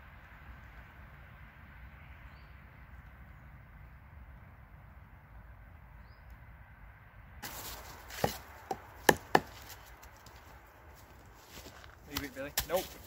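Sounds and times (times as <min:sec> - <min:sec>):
wooden log knocking on trunk: 0:08.1 - 0:09.6.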